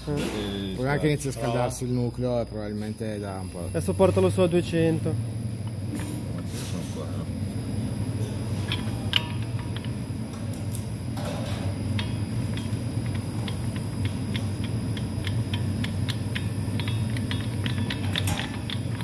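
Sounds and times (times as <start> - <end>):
induction heater hum and whine: 0.0 - 19.0
sharp ticks: 11.9 - 19.0.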